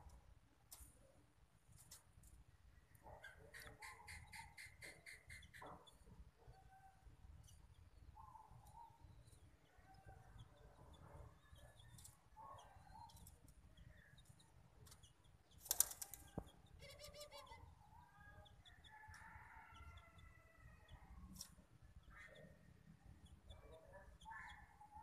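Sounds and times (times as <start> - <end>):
faint bird chirps and squeaks: 3.1 - 10.6, 11.3 - 19.3, 23.2 - 25.0
dove wings flapping: 15.6 - 16.2.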